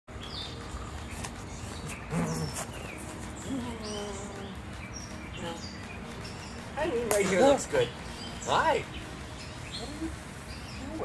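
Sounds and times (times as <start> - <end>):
songbirds chirping: 0.1 - 11.0.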